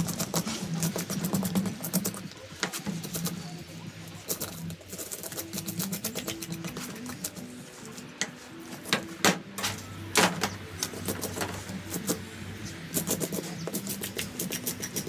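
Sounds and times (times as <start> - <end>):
fish scaler scraping scales: 4.2 - 8.1, 10.8 - 15.0.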